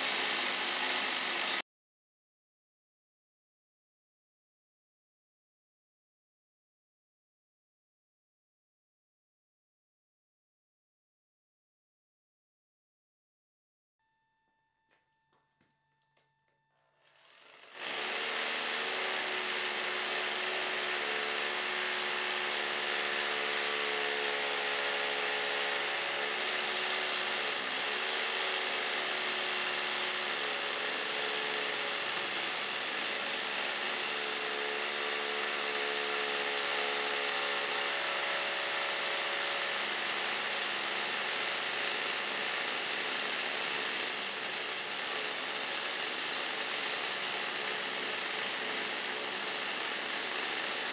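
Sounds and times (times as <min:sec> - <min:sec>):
hammer drill boring into concrete: 0:00.0 - 0:01.6, 0:17.0 - 0:50.9.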